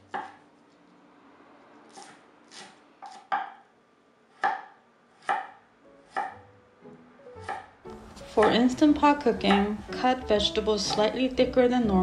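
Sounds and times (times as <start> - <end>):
knife chopping on wooden board: 0.0 - 0.4, 1.9 - 3.6, 4.3 - 6.5, 7.4 - 8.8, 9.4 - 9.8.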